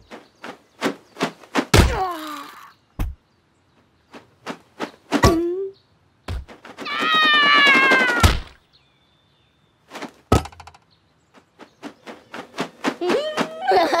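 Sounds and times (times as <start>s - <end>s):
cartoon thud: 1.7s - 2.1s, 6.3s - 8.6s
toy wings flapping: 6.8s - 8.3s, 11.8s - 14.0s
voice-like cries: 6.8s - 8.5s.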